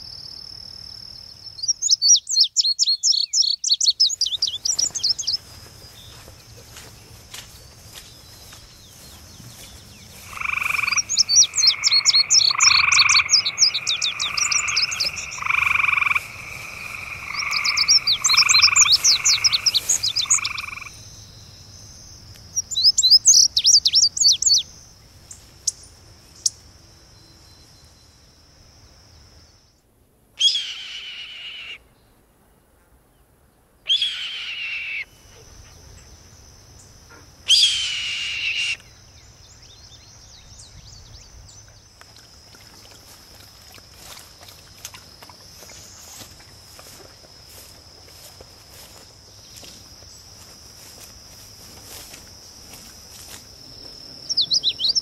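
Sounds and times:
high chirping trills: 1.6s - 6.2s, 8.0s - 21.2s, 22.6s - 24.7s, 52.7s - 55.0s.

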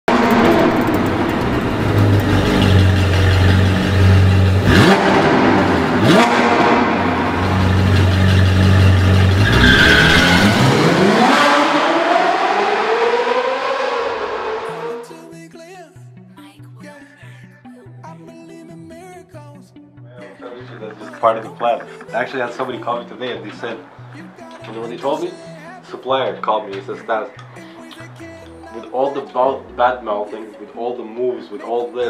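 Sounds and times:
sports car engine revving: 0.1s - 15.1s.

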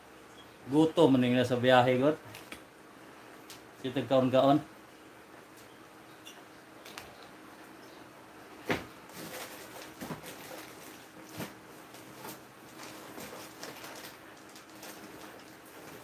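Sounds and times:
rummaging in cardboard box: 9.1s - 16.0s.

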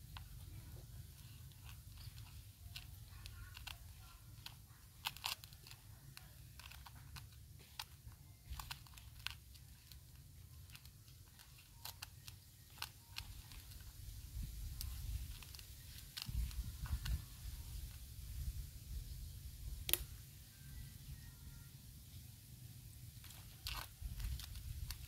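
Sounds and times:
sharp clicks and crunches: 0.0s - 17.2s, 23.1s - 25.0s.

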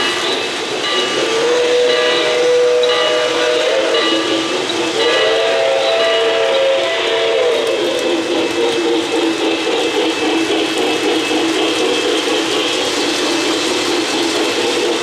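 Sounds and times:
model trains running on track: 0.0s - 15.0s.

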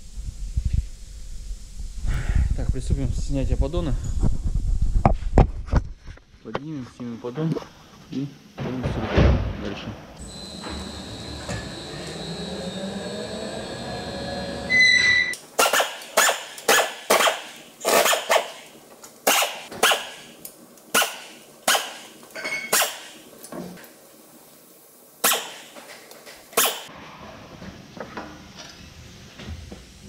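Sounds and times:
hoist machine hum with whine: 10.2s - 16.6s
pneumatic wrench bursts: 15.6s - 23.2s, 25.2s - 25.8s, 26.5s - 26.9s.

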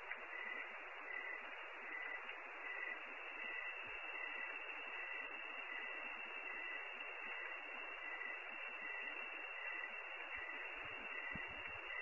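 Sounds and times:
static hiss: 0.0s - 12.0s.

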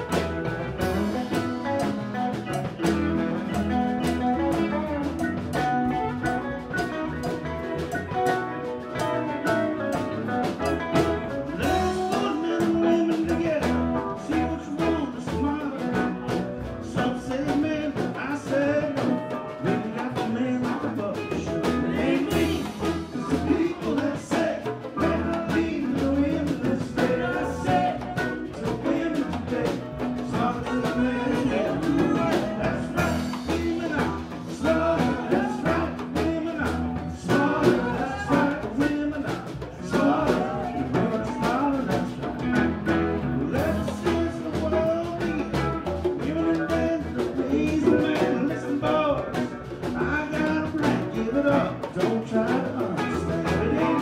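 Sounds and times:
live blues band playing: 0.0s - 54.0s.

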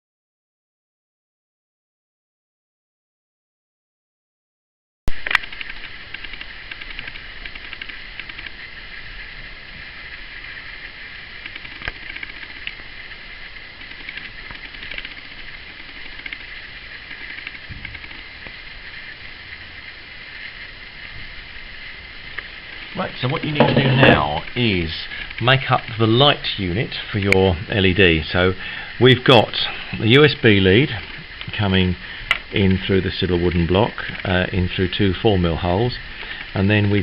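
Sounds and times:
high room noise hiss: 5.1s - 37.0s
faint clicks: 5.2s - 8.6s, 11.4s - 12.8s, 13.4s - 18.6s.

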